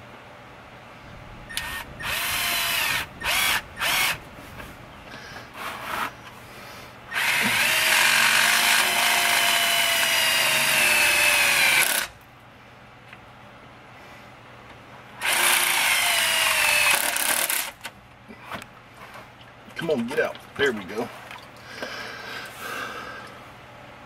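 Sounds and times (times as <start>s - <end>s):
power drill whining: 1.5s - 4.2s, 7.1s - 12.1s, 15.2s - 17.8s.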